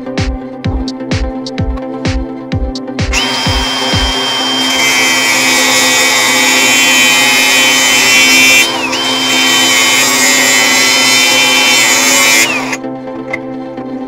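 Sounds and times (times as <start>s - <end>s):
rotary tool cutting metal pipe: 3.1s - 12.8s.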